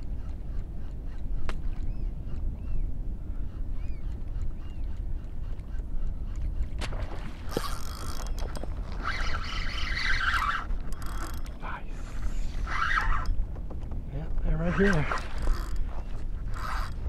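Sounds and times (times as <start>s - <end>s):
fishing reel cranking: 7.5s - 13.4s, 14.6s - 17.0s.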